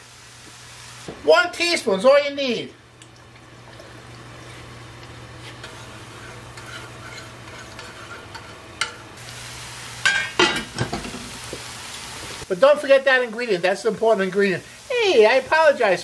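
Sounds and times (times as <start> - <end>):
spoon stirring sizzling sauce: 3.2 - 9.1.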